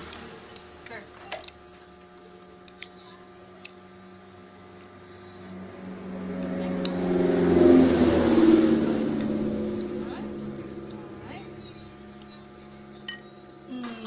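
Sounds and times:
vehicle engine running: 3.4s - 14.0s.

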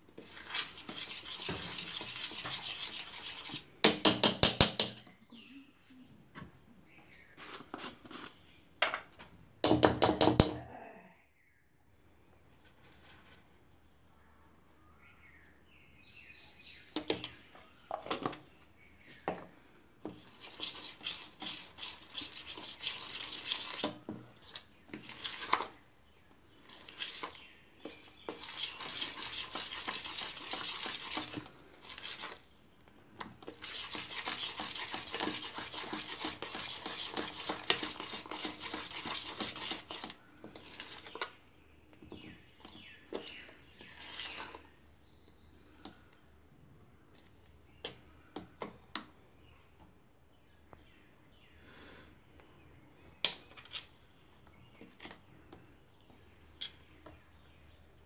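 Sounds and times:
spoon beating batter in metal bowl: 0.2s - 5.0s, 20.0s - 25.8s, 26.7s - 32.5s, 33.2s - 41.4s.

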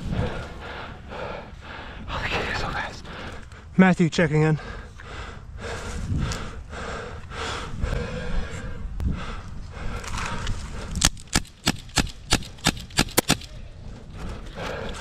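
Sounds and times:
heavy breathing: 0.0s - 3.7s, 4.6s - 11.0s, 13.8s - 15.0s
airsoft pistol shots: 11.3s - 13.5s.

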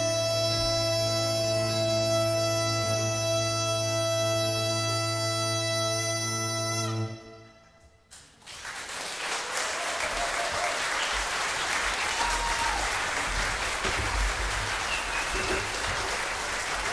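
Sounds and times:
bagpipes chord over drone: 0.0s - 7.8s
audience applause: 8.1s - 16.9s.

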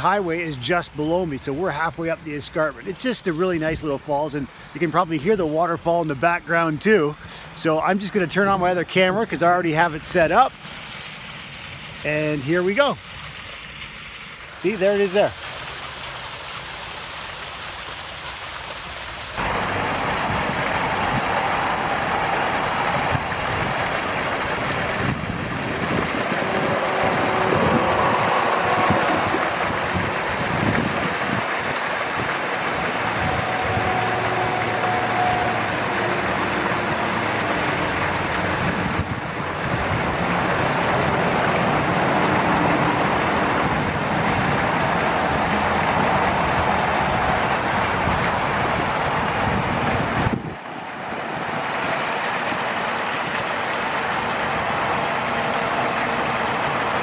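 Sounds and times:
highway traffic noise: 0.0s - 3.8s, 19.2s - 57.0s
waterfall rushing: 0.0s - 57.0s.

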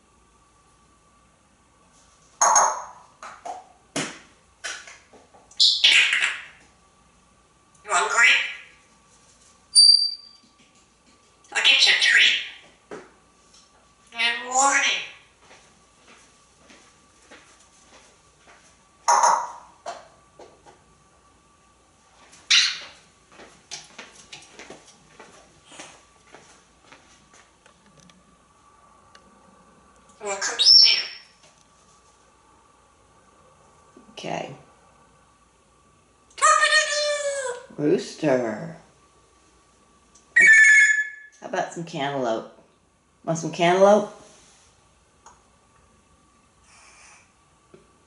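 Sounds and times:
parrot high squeak: 2.4s - 3.0s, 9.7s - 10.4s, 30.3s - 31.2s, 40.4s - 41.4s
parrot loud call: 2.4s - 3.0s, 40.4s - 41.4s
parrot squawking: 2.4s - 3.0s, 5.6s - 6.6s, 7.9s - 8.7s, 11.5s - 12.6s, 14.2s - 15.2s, 19.1s - 19.7s, 22.5s - 23.0s, 30.2s - 31.2s, 40.4s - 41.4s
parrot squawks clicks and chirps: 2.4s - 3.0s, 22.5s - 23.0s, 40.4s - 41.4s.

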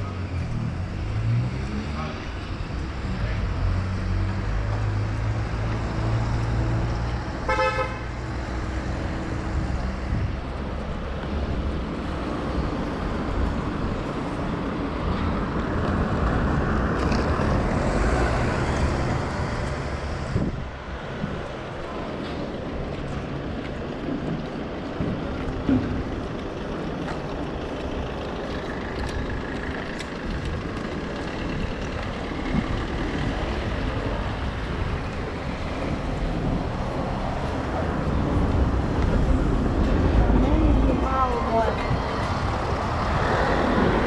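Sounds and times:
car engines passing: 0.0s - 44.0s
car horn toot: 7.5s - 8.0s.

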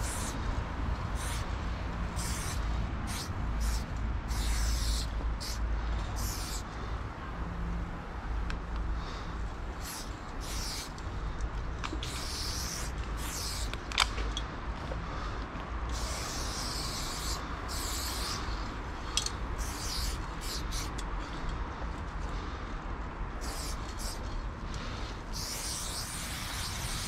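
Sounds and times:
spray paint can hissing: 0.0s - 6.7s, 9.8s - 11.0s, 11.9s - 14.0s, 15.9s - 21.1s, 23.4s - 27.0s.

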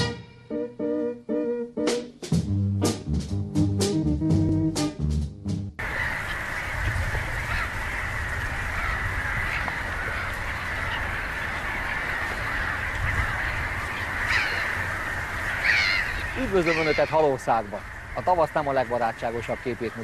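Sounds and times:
jazzy theme tune: 0.0s - 5.8s
chorus of birds calling: 5.8s - 20.0s.

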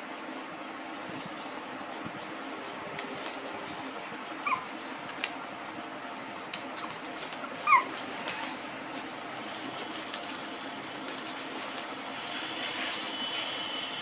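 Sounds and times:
steady background noise: 0.0s - 14.0s
puppies whimpering: 4.4s - 4.8s, 7.6s - 8.6s.

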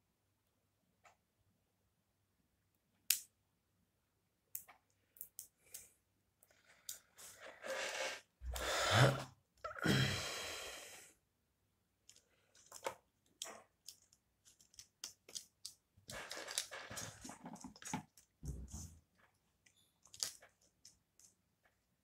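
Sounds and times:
plastic parts rustling and scraping: 12.1s - 21.4s.

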